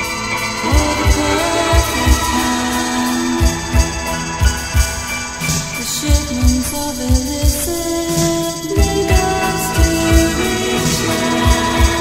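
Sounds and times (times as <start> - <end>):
held notes shifting pitch: 0.0 - 7.0
low repeating beat: 0.0 - 7.8.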